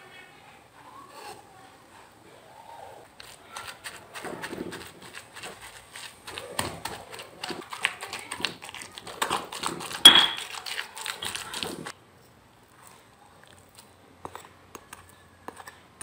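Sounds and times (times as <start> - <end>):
pestle pounding in stone mortar: 3.9 - 10.7
stone-on-stone clack: 10.1 - 10.5.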